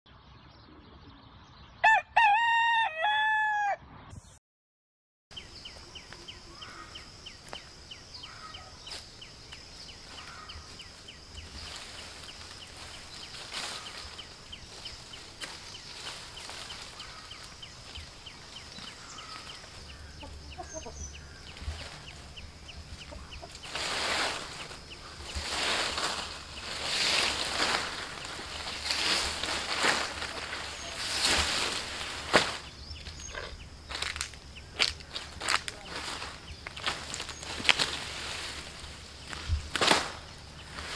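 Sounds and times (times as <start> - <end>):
rooster crowing: 1.8 - 3.8.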